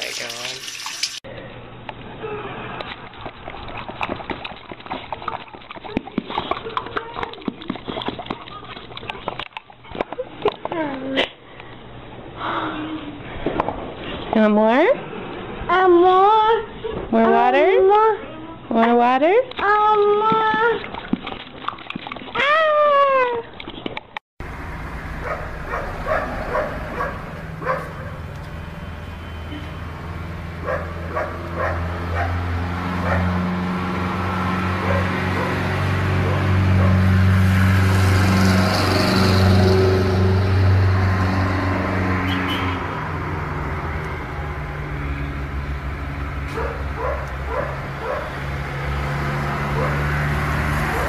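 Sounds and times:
low traffic hum: 0:24.4 - 0:51.0
vehicle passing: 0:24.4 - 0:51.0
dog barking: 0:25.2 - 0:28.2, 0:30.6 - 0:32.4, 0:33.0 - 0:33.3, 0:34.8 - 0:35.6, 0:36.2 - 0:37.0, 0:46.5 - 0:48.4, 0:49.8 - 0:50.0.

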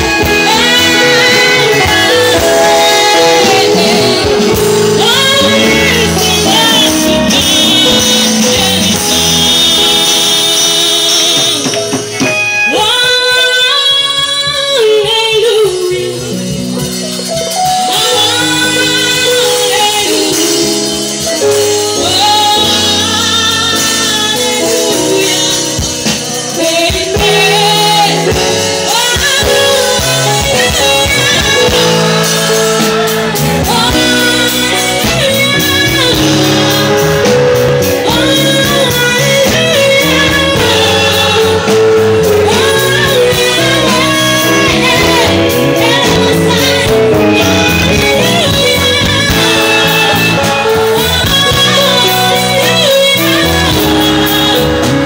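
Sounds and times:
gospel band playing: 0:00.0 - 0:55.0
woman singing into a microphone: 0:00.0 - 0:55.0.

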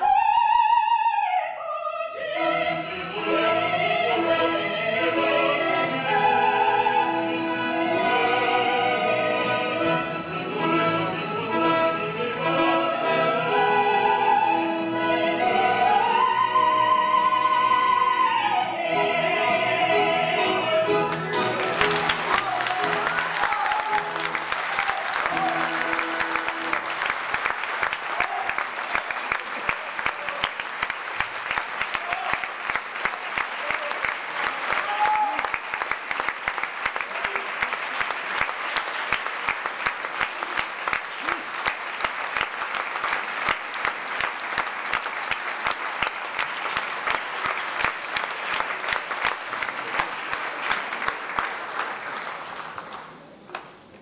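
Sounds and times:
audience applauding: 0:21.1 - 0:54.0.

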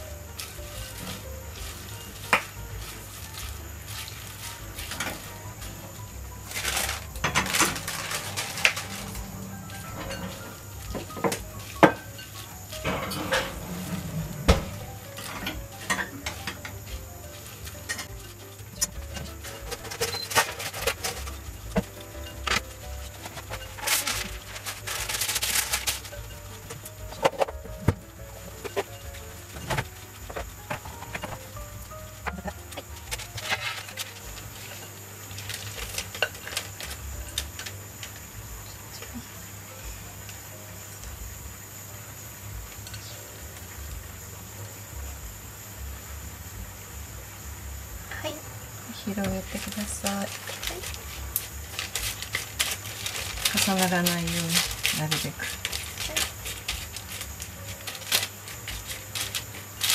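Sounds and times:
utensils clinking on a dish: 0:00.0 - 0:38.2.

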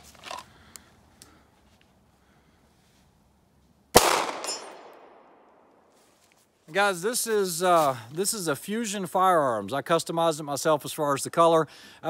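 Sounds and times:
pistol shot with echo: 0:03.9 - 0:05.6.

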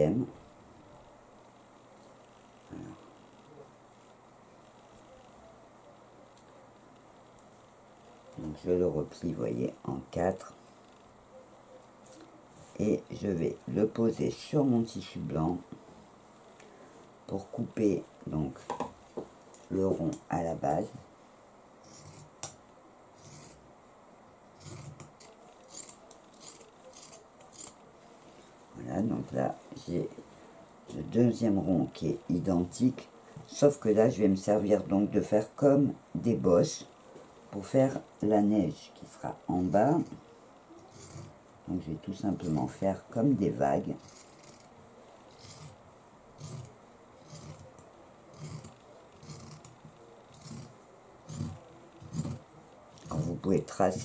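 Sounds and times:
scissors snipping fabric: 0:24.6 - 0:27.8, 0:44.0 - 0:44.7, 0:45.3 - 0:45.8, 0:46.4 - 0:50.7, 0:51.3 - 0:52.4.

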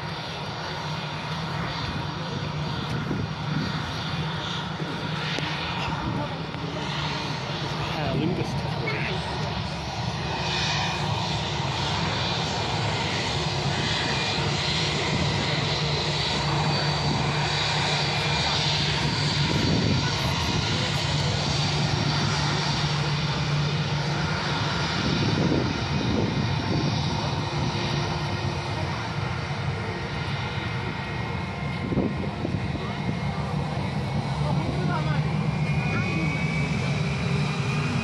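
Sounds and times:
jet engines rumbling and whining: 0:00.0 - 0:38.0.

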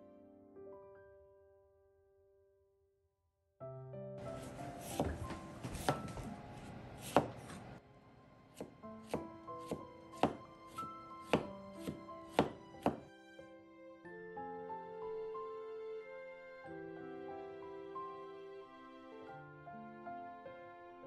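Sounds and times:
soft background music: 0:03.6 - 0:21.0
knife chopping on wooden board: 0:04.8 - 0:07.8, 0:08.6 - 0:13.1.

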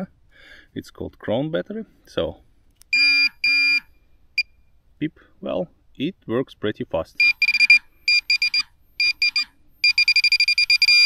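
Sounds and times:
high electronic beeps: 0:07.2 - 0:11.0.

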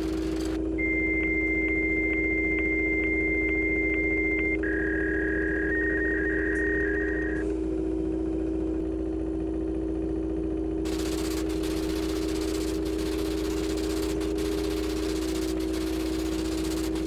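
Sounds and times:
low electronic hum: 0:00.0 - 0:17.0
warbling two-tone signal: 0:00.3 - 0:07.5.

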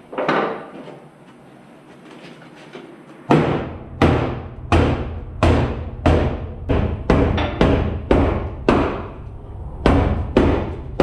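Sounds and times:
hammer blows on sheet metal: 0:03.3 - 0:09.2, 0:09.8 - 0:11.0.

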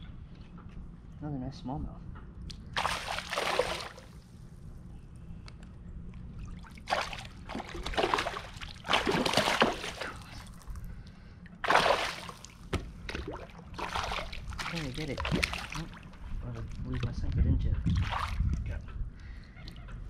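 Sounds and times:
fish splashing in water: 0:02.8 - 0:04.1, 0:06.5 - 0:10.6, 0:11.6 - 0:16.0.

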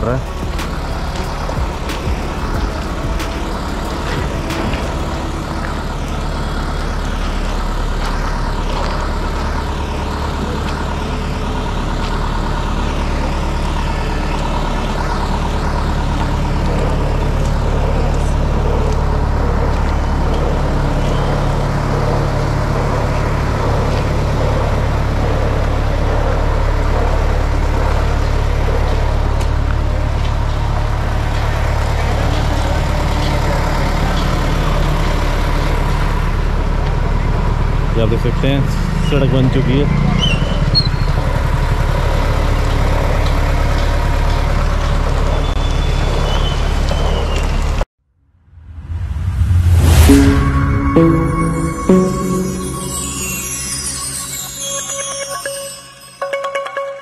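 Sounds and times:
vehicle engine rumble: 0:00.0 - 0:54.4
road noise: 0:00.0 - 0:56.4.

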